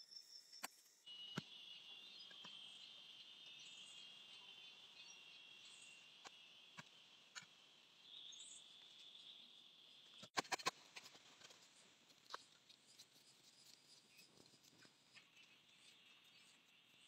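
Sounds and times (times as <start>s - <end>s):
faint insect drone: 0.0s - 17.0s.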